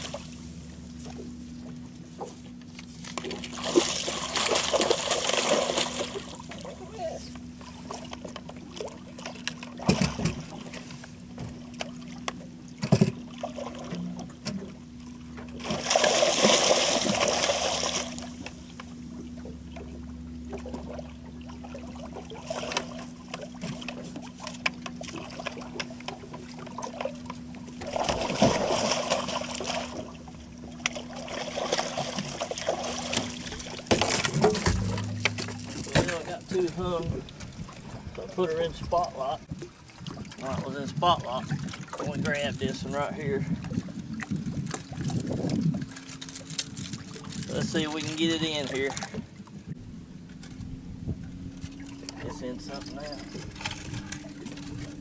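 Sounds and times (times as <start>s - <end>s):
fish splashing at surface: 3.2s - 6.5s, 15.6s - 18.4s
sharp knocks: 33.9s - 36.2s.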